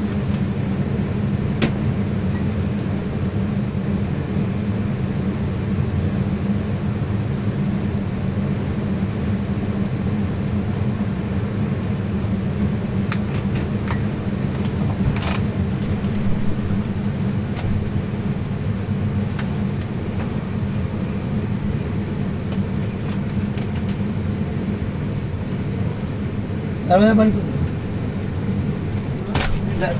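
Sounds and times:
refrigeration unit humming: 0:00.0 - 0:29.9.

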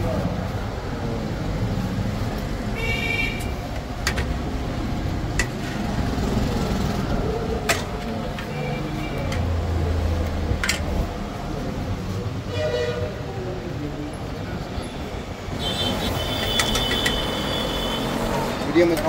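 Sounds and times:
traffic rumble: 0:00.0 - 0:19.0
car horn: 0:02.8 - 0:03.6, 0:12.5 - 0:13.2, 0:15.5 - 0:18.3
engine passing by: 0:03.9 - 0:12.2.

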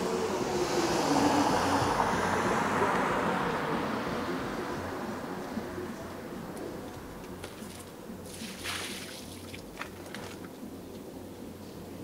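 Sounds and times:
car driving past: 0:00.0 - 0:07.4.

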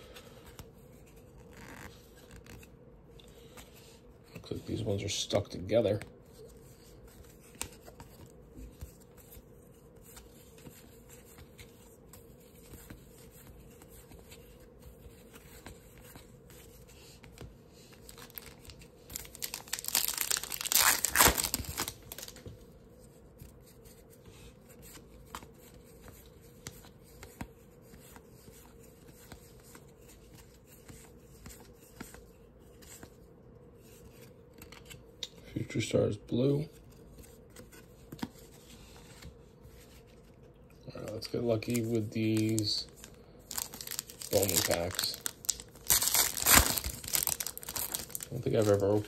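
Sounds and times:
wrapper tearing and crinkling: 0:18.1 - 0:22.4, 0:41.6 - 0:49.0.

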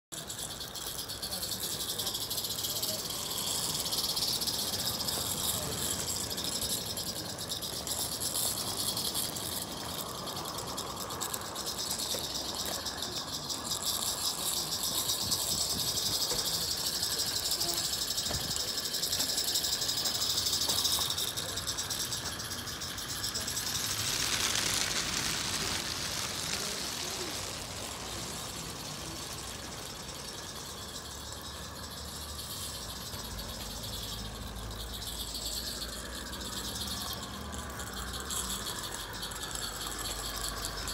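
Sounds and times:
wheels rattling on track: 0:00.0 - 0:40.9
steam locomotive exhaust beats: 0:00.2 - 0:40.9.

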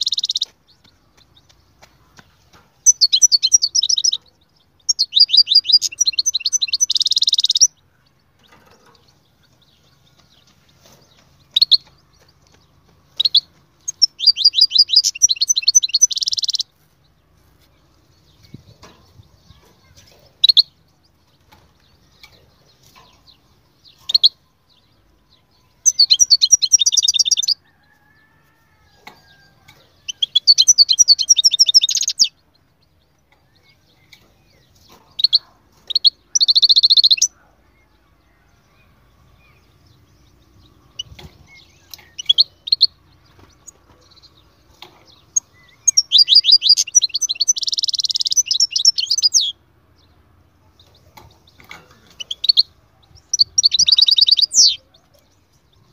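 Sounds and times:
bird twittering: 0:00.0 - 0:00.5, 0:02.8 - 0:07.8, 0:13.2 - 0:16.7, 0:25.9 - 0:27.6, 0:30.0 - 0:32.3, 0:35.2 - 0:37.4, 0:40.9 - 0:44.4, 0:45.2 - 0:49.6, 0:52.0 - 0:55.1.

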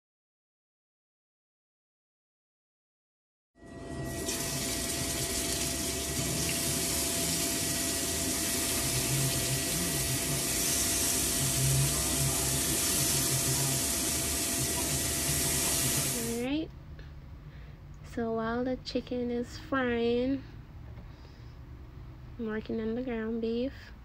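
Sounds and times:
chicken frying in a pan: 0:04.0 - 0:16.4.

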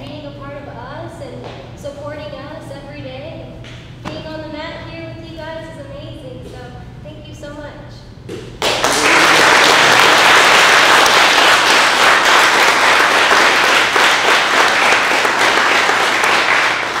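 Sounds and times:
people applauding: 0:08.6 - 0:17.0.

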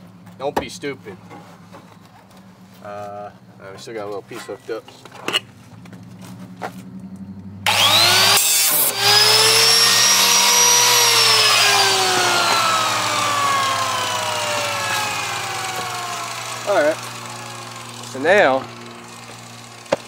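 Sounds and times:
power tool motor whining: 0:07.6 - 0:20.0.

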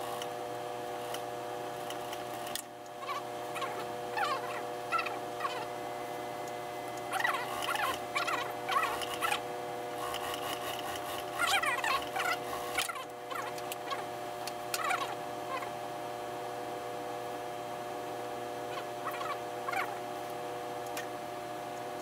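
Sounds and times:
steady hum: 0:00.0 - 0:22.0
sewing machine stitching: 0:07.3 - 0:09.4, 0:10.0 - 0:12.9.

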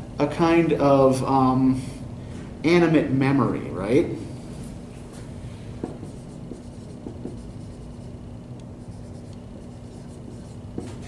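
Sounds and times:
marker writing on whiteboard: 0:05.8 - 0:08.2, 0:08.8 - 0:11.0.

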